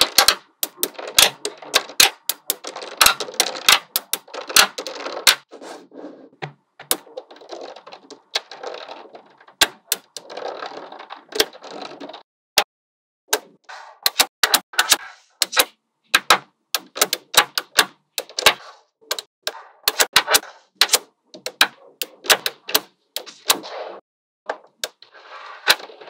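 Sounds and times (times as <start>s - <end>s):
magnetic balls clicking together: 0.0s - 5.5s.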